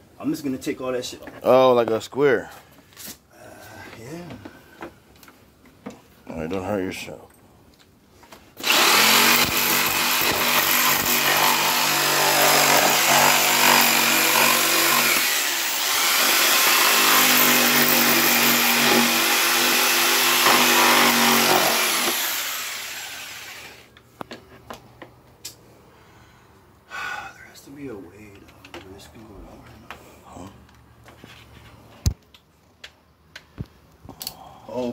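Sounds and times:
jigsaw cutting plastic: 0:08.6 - 0:23.8.

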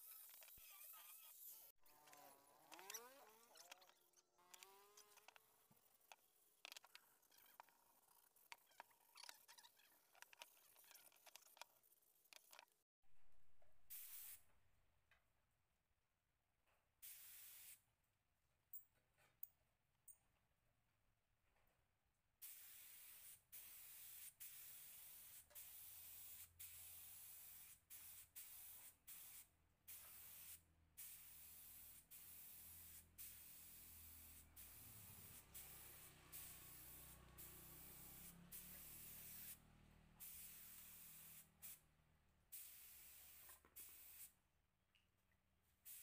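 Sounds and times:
spray gun hissing in bursts: 0:17.0 - 0:17.8, 0:22.4 - 0:39.6, 0:40.2 - 0:41.8, 0:42.5 - 0:44.3.

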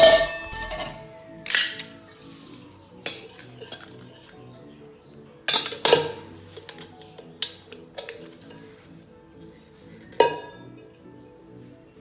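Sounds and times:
steel pots clanking: 0:00.0 - 0:02.2, 0:10.2 - 0:10.9.

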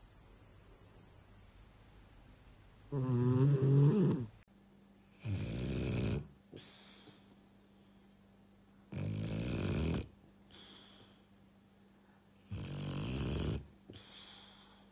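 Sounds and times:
dog snoring: 0:02.9 - 0:04.4, 0:05.1 - 0:06.4, 0:08.9 - 0:10.2, 0:12.4 - 0:14.0.

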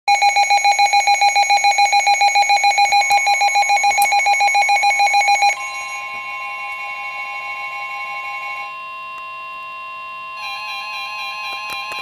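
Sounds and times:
steady alarm tone: 0:00.1 - 0:12.0.

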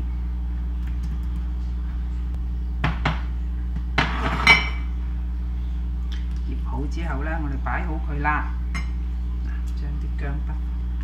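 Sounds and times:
steady low hum: 0:00.0 - 0:11.0.

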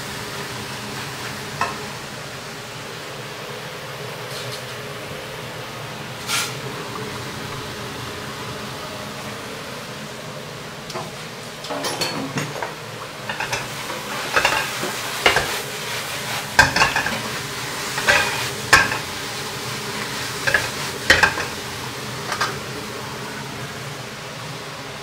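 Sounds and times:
food sizzling: 0:00.0 - 0:05.0, 0:05.7 - 0:25.0
spatula scraping and knocking wok: 0:11.7 - 0:22.7.

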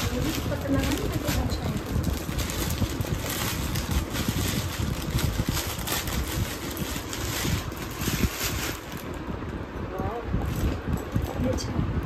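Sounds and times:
plastic bag crinkling: 0:00.0 - 0:09.2
wind rumble on microphone: 0:00.0 - 0:12.0.

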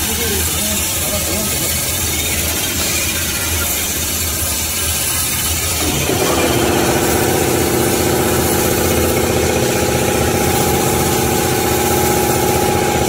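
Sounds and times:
low machine rumble: 0:00.0 - 0:13.0
machine hum of held tones: 0:00.0 - 0:13.0.

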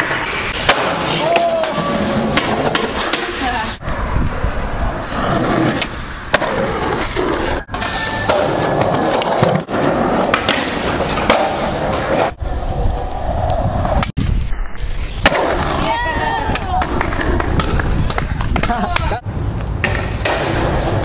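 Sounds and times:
skateboard clacking: 0:00.0 - 0:03.7, 0:07.6 - 0:12.0, 0:15.2 - 0:21.0
skateboard wheels rolling on concrete: 0:00.0 - 0:21.0.

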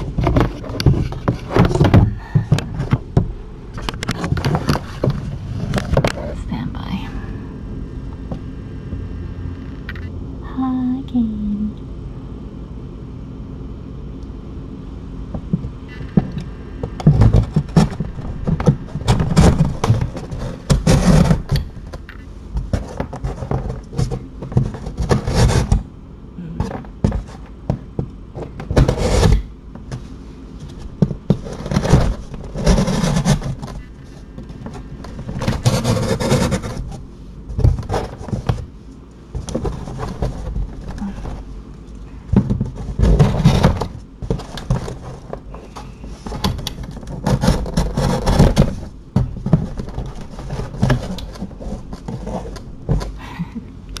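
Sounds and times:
cardboard boxes being handled: 0:15.4 - 0:25.9, 0:26.6 - 0:53.4.

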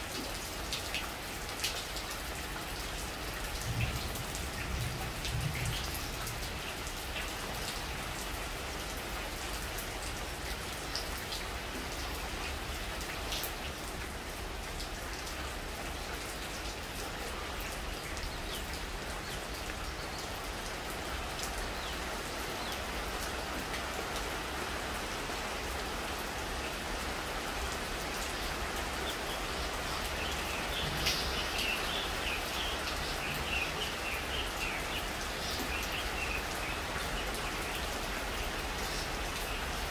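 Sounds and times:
rain pattering on leaves: 0:00.0 - 0:39.9.

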